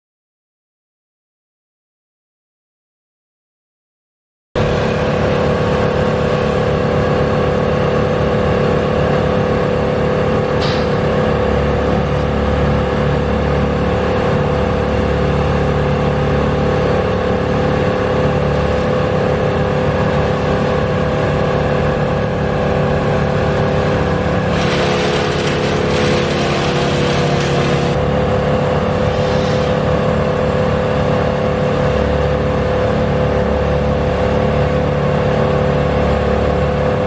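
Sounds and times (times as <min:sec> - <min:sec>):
large engine running steadily: 0:04.6 - 0:37.0
deep rumble: 0:11.1 - 0:29.1.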